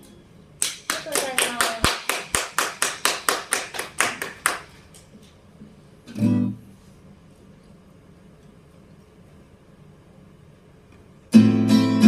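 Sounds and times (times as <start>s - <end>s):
faint room noise: 0.0s - 12.0s
hands clapping in rhythm: 0.6s - 5.0s.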